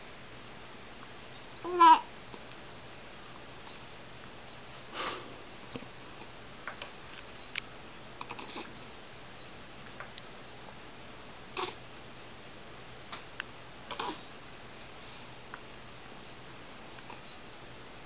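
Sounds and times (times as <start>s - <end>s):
baby hiccuping: 11.6s - 11.8s, 13.9s - 14.2s.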